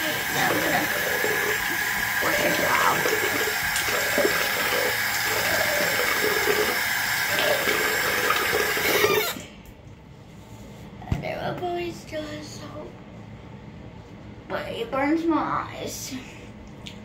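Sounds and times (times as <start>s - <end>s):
sink tap running: 0.0s - 9.5s.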